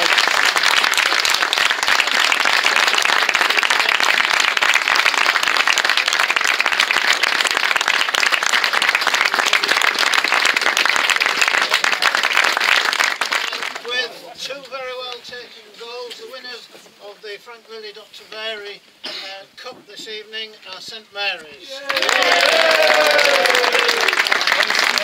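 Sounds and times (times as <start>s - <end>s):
crowd applauding: 0.0s - 14.1s, 21.7s - 25.0s.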